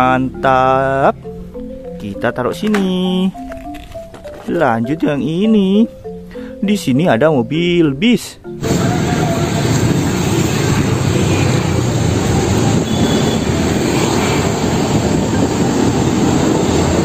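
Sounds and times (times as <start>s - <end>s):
road noise: 0.0s - 17.0s
bus diesel engine driving past: 8.6s - 17.0s.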